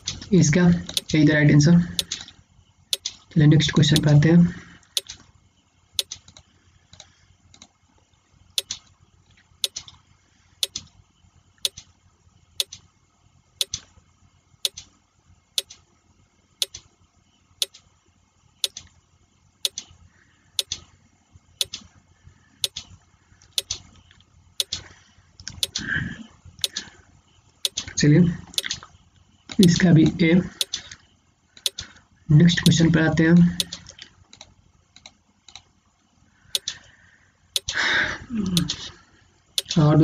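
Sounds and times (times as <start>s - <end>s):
countdown timer ticking: 0.9s - 1.2s.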